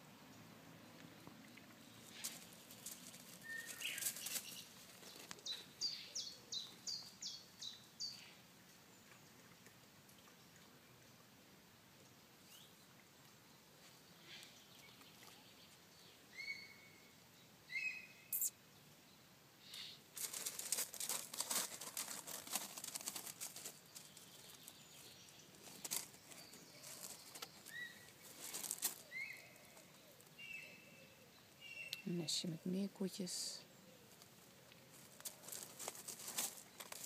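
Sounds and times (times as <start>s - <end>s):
crackling and crunching noise: 1.0s - 5.6s, 19.7s - 30.3s, 34.1s - 37.0s.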